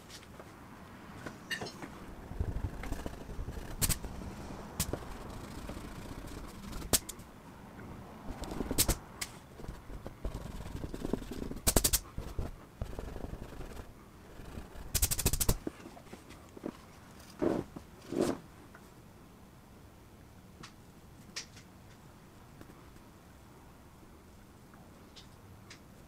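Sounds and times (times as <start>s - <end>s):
hand rubbing paper: 2.1s - 7.2s, 8.3s - 18.4s
sharp clicks: 2.6s - 4.2s, 4.8s - 7.2s, 8.3s - 12.0s, 14.5s - 15.6s.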